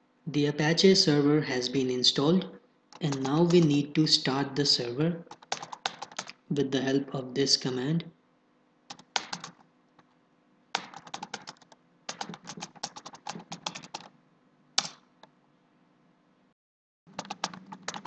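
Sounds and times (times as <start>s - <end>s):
typing on a computer keyboard: 2.9s - 3.7s, 5.3s - 6.4s, 8.9s - 9.7s, 10.7s - 14.1s, 14.8s - 15.1s, 17.1s - 18.0s.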